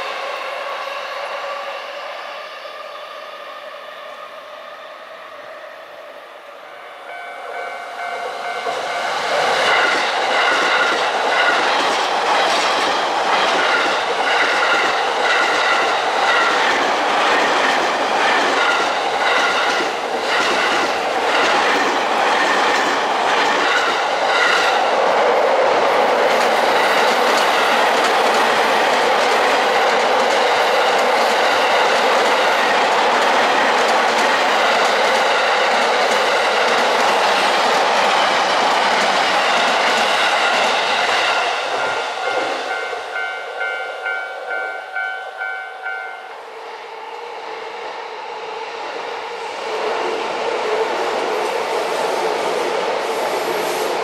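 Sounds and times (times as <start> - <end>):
train wheels clattering: 8.1 - 24.8.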